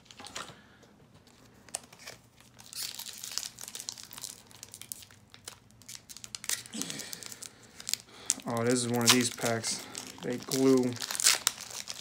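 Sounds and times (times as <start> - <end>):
foil wrapper crinkling: 1.7 - 12.0.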